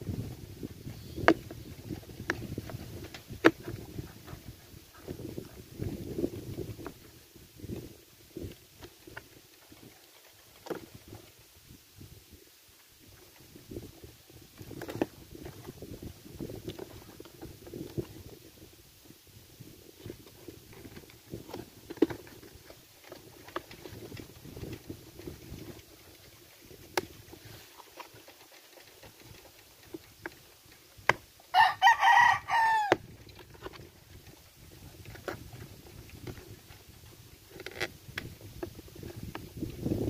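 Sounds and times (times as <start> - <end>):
rooster crowing: 31.5 - 33.0.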